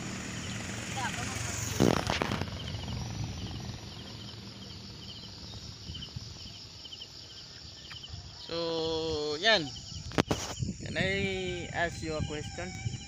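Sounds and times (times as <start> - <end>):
low background rumble: 0.0 - 6.9
insect chirping: 0.0 - 13.0.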